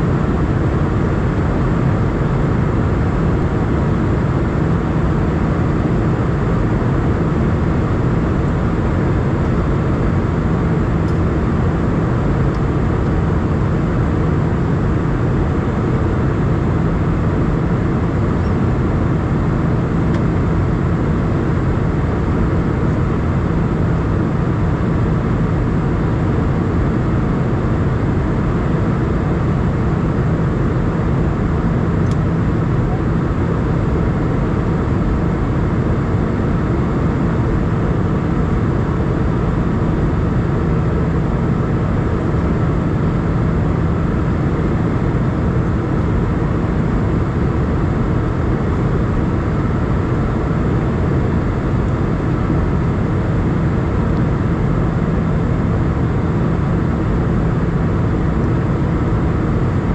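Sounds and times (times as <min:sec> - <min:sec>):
airplane cabin rumble: 0:00.0 - 0:59.9.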